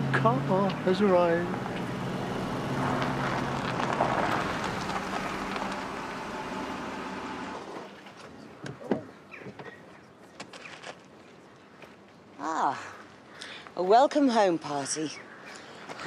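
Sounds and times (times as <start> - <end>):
car driving slowly: 0.0 - 9.0.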